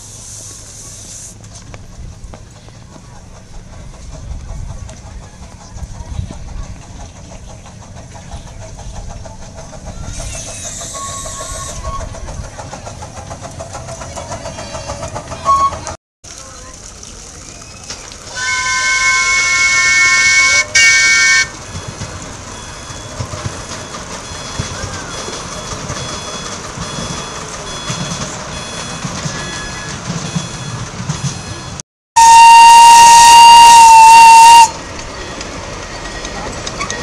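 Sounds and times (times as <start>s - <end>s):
train rumbling along track: 0.0s - 37.0s
steam locomotive whistle: 10.0s - 12.2s, 18.3s - 21.6s, 32.2s - 35.0s.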